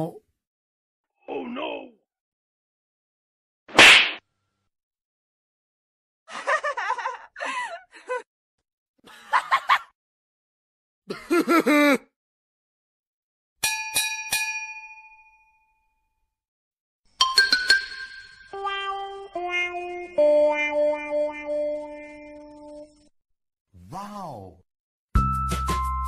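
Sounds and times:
bell-like dings: 13.6s - 15.9s, 17.2s - 18.6s
background music: 17.2s - 23.1s, 25.2s - 26.0s.

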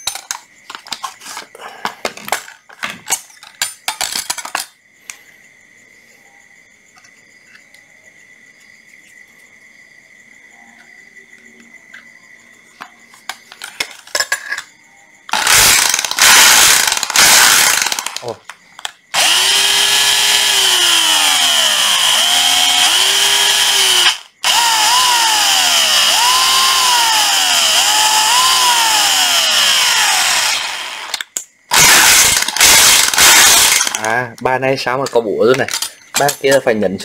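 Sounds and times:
plastic clicks and rattles: 0.0s - 4.8s, 35.0s - 36.7s
cordless drill running: 15.3s - 18.2s, 19.2s - 34.1s.

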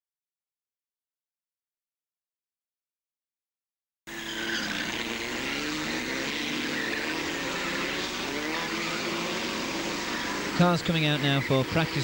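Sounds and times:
racing car engines: 4.1s - 12.0s.

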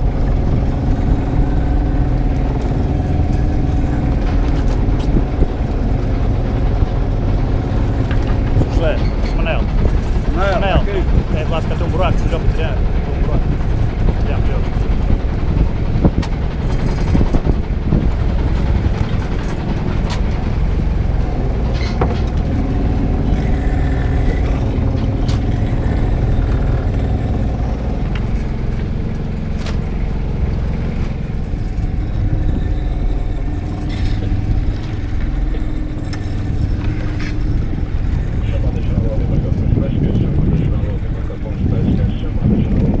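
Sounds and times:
boat engine rumbling: 0.0s - 43.0s.

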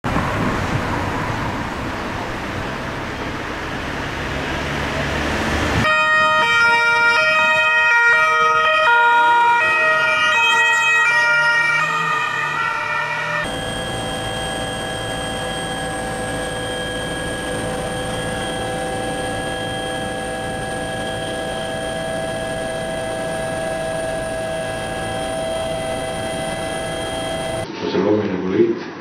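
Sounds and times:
street traffic: 0.0s - 27.6s
electronic tones stepping in pitch: 11.8s - 27.7s.

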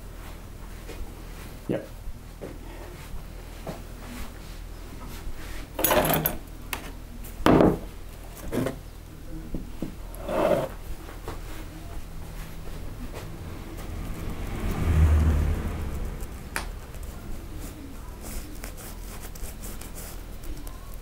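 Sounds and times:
tools knocking on wooden counter: 7.4s - 7.9s.

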